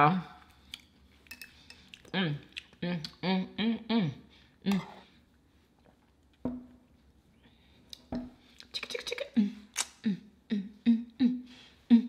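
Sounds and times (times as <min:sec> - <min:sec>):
woman humming: 0:09.2 - 0:12.0.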